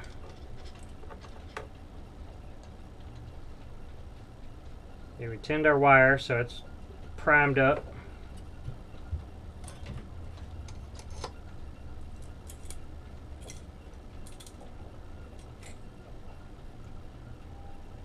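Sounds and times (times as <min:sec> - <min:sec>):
steady low hum: 0:00.0 - 0:18.0
small tools clicking and rattling: 0:12.3 - 0:12.8, 0:13.4 - 0:14.7, 0:15.4 - 0:15.8.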